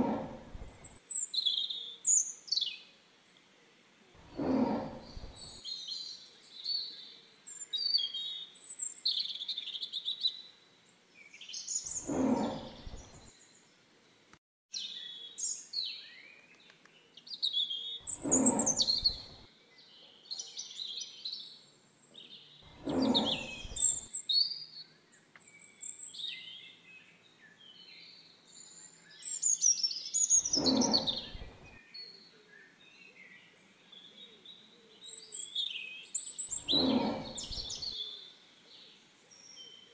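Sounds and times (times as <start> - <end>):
tiger calling: 0.0 - 1.0, 4.2 - 5.6, 11.9 - 13.3, 18.1 - 19.4, 22.7 - 24.1, 30.4 - 31.7, 36.5 - 37.9
birdsong chirps and trills: 0.0 - 3.5, 4.2 - 39.9.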